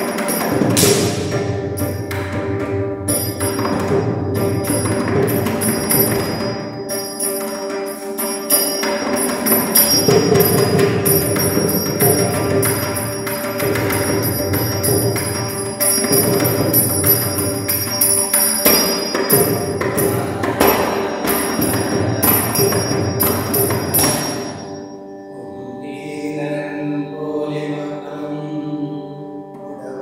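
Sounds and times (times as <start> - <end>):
hand cymbals ringing: 0.0 - 25.3
drum playing rapid strokes: 0.2 - 2.7.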